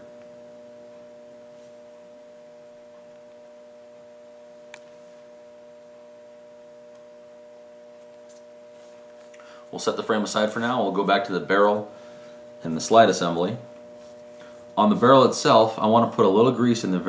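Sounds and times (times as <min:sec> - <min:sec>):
faint steady hum: 0:00.0 - 0:17.0
small click: 0:04.7 - 0:05.0.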